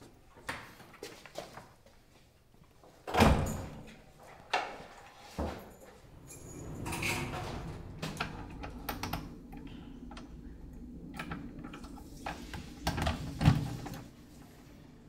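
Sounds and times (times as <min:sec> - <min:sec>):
keys rattling in a lock: 0:03.1 - 0:04.1, 0:05.6 - 0:09.6
low steady hum: 0:05.8 - 0:15.0.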